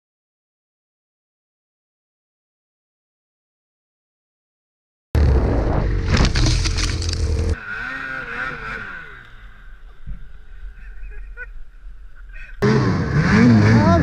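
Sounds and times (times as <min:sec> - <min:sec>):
snowmobile engine revving: 0:05.2 - 0:14.0.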